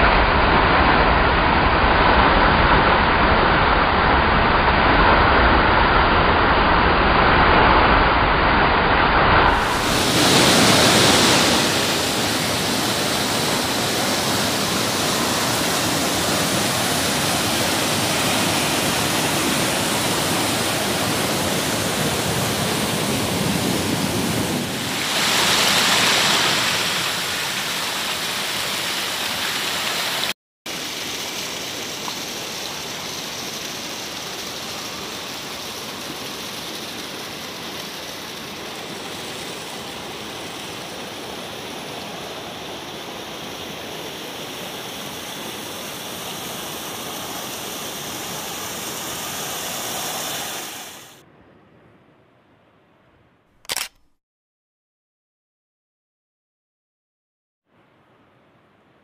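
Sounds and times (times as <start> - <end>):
stream rushing over boulders: 0.0 - 51.2
water spilling over small cascade: 9.5 - 22.8, 24.8 - 50.9.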